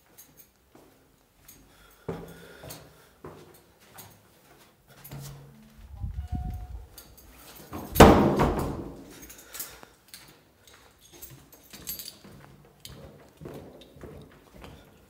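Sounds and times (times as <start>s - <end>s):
heavy wooden door banging shut: 7.8s - 9.1s.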